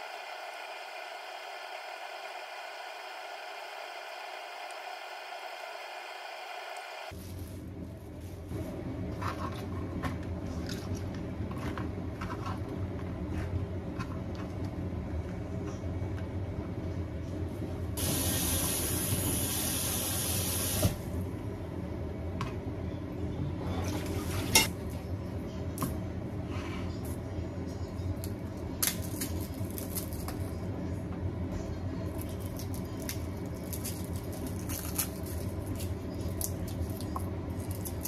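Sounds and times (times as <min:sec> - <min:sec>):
tap water running: 0:18.0 - 0:21.0.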